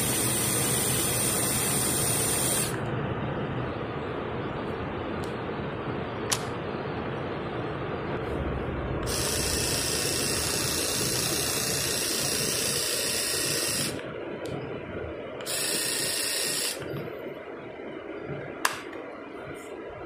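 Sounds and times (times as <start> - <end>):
electric shaver running: 0.0 - 2.8, 9.0 - 14.0, 15.4 - 16.8.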